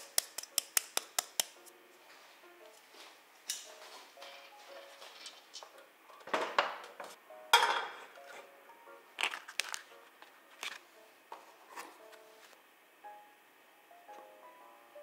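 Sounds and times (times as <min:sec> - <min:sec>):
soft background music: 0:00.0 - 0:15.0
kitchen clatter: 0:03.5 - 0:08.2
wrapper clicking and crinkling: 0:09.2 - 0:10.8.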